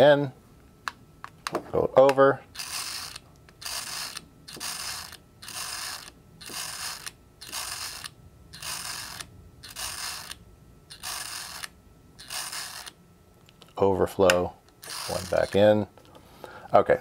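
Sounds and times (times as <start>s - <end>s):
calculator crank ratcheting whir: 2.5s - 13.0s, 14.8s - 15.6s.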